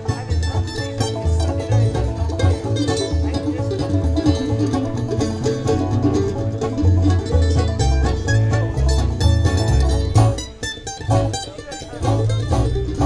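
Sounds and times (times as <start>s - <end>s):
acoustic guitars picking: 0.0s - 13.0s
banjo picking: 0.0s - 13.0s
upright bass: 0.0s - 13.0s.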